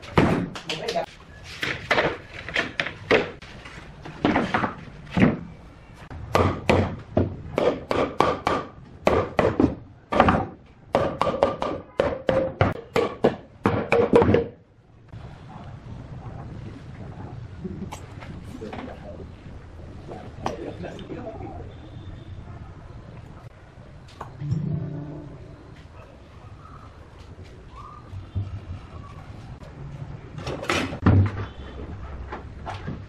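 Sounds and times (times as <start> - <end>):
sharp wooden knocks: 1.6 - 3.4, 6.3 - 14.6.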